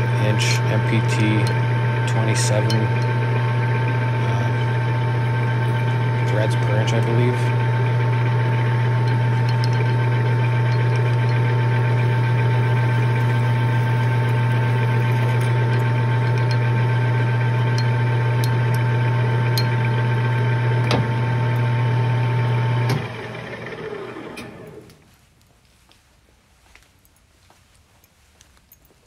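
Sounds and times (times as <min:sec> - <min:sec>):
drill bit cutting ticks: 0:00.0 - 0:21.7
metal lathe running: 0:00.0 - 0:24.8.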